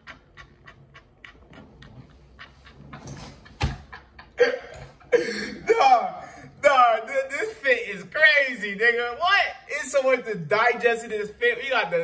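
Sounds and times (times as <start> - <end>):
man laughing hard: 3.5 - 6.4.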